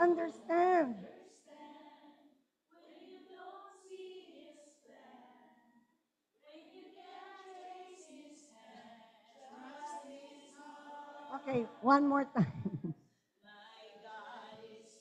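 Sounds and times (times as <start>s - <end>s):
woman singing worship song: 0.0s - 1.7s, 6.7s - 12.6s, 13.6s - 15.0s.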